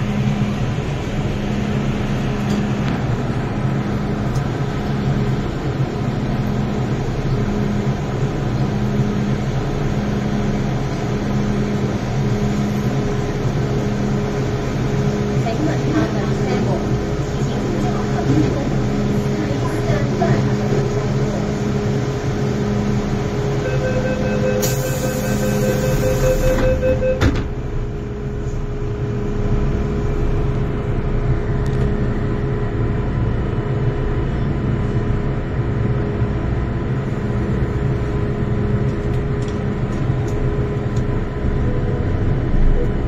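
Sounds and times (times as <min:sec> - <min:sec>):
train hum and rumble: 0:00.0 - 0:43.0
door-closing warning beeps: 0:23.6 - 0:27.5
train doors knocking shut: 0:26.3 - 0:27.7.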